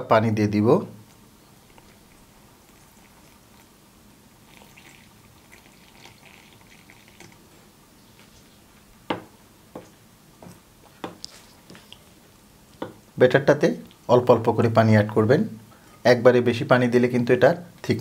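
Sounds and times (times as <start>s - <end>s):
water trickling into bowl: 1.6s - 3.8s, 4.4s - 7.5s.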